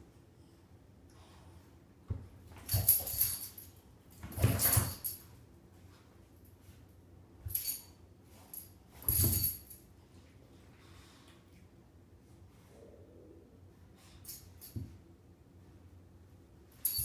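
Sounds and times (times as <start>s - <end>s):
light jangle: 2.5s - 5.4s, 7.4s - 10.0s, 14.0s - 15.0s, 16.7s - 17.0s.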